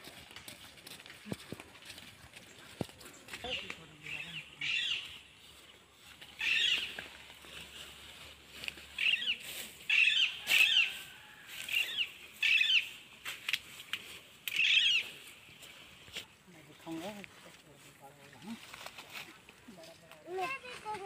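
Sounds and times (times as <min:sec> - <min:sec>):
footsteps swishing through grass: 0:05.0 - 0:16.4.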